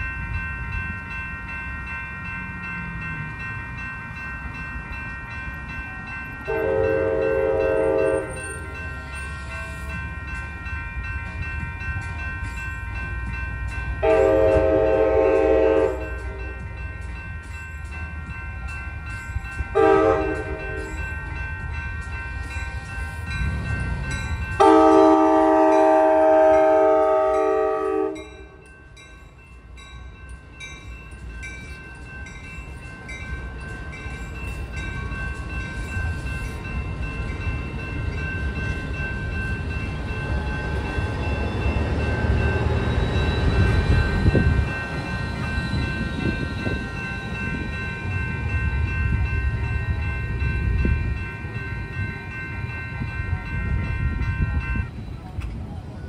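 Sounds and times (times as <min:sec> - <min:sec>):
railroad crossing bells ringing: 0:00.0 - 0:56.0
train wheels rumbling: 0:00.0 - 0:56.0
train horn blast: 0:06.5 - 0:08.4, 0:14.0 - 0:16.4, 0:19.7 - 0:20.9, 0:24.6 - 0:28.5.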